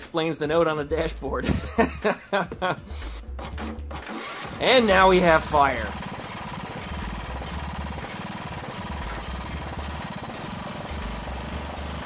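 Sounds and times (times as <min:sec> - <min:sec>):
riding mower engine running choppy: 0:03.4 - 0:12.0.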